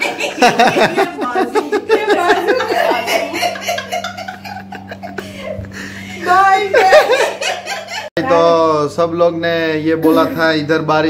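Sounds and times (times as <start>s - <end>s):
people laughing: 0.0s - 8.1s
woman laughing: 0.0s - 8.1s.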